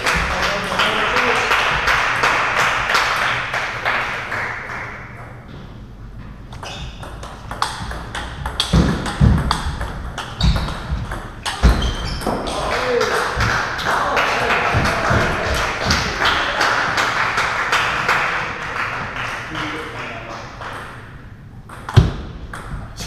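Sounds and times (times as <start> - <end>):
table tennis ball clicking: 6.6 - 11.6.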